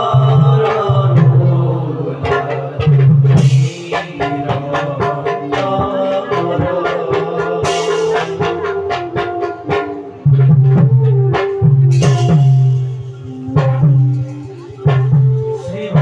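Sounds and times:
keyboard melody: 0.0 - 16.0
quick dense drum strokes: 0.0 - 16.0.

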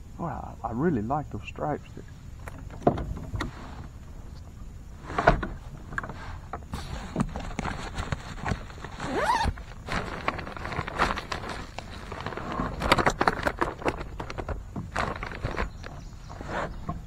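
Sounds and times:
gear knocking against plastic kayak: 5.2 - 17.0.

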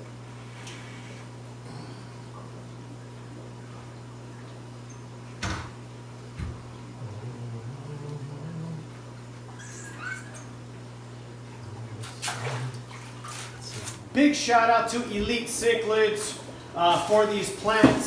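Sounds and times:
steady low hum: 0.0 - 17.8.

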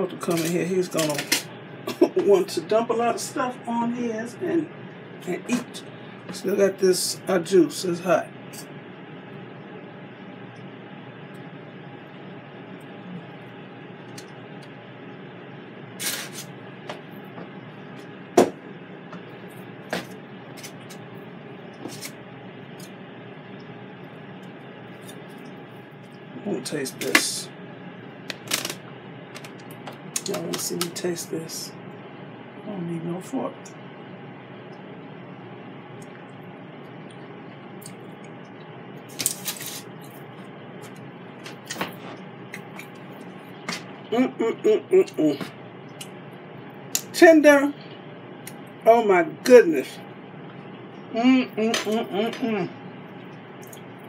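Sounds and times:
room noise: 0.0 - 54.0
person chewing food: 37.0 - 44.1.

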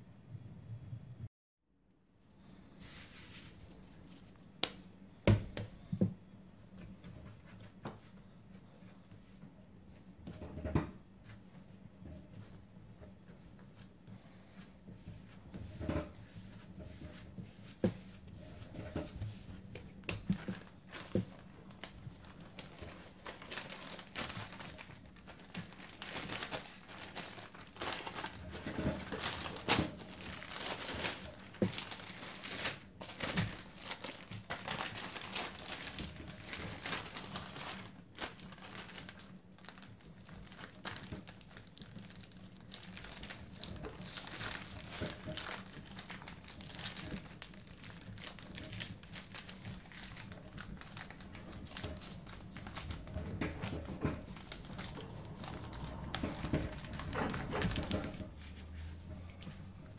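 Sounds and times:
plastic bag crinkling: 18.4 - 59.9.

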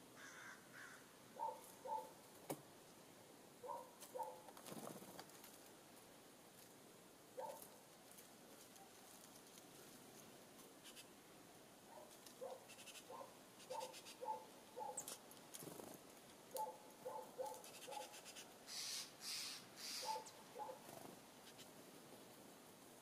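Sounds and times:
distant animal calls: 16.6 - 21.7.

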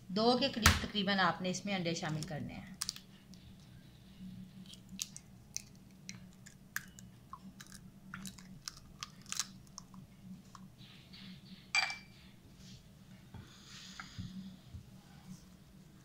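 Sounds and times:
eggshell cracking: 2.1 - 3.1, 4.6 - 10.7.

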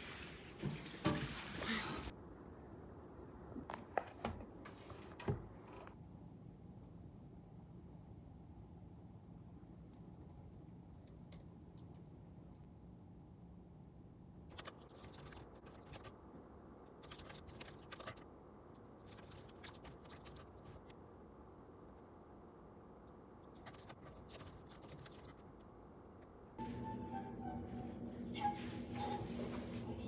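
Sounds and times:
low room hum: 0.0 - 30.0.

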